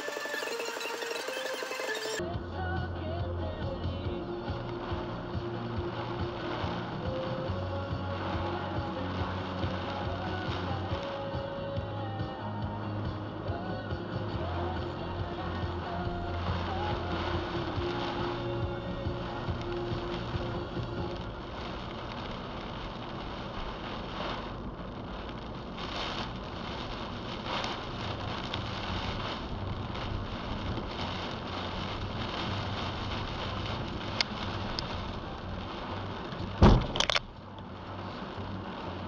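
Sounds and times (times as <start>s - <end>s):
rain and tyre spray: 0.0s - 39.0s
low engine hum: 2.2s - 39.0s
loud thump: 36.6s - 37.3s.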